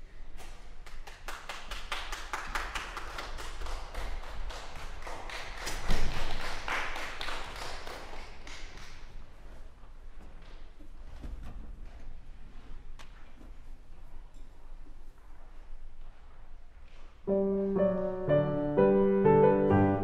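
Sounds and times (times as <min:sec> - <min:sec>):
audience applauding: 0:00.9 - 0:09.0.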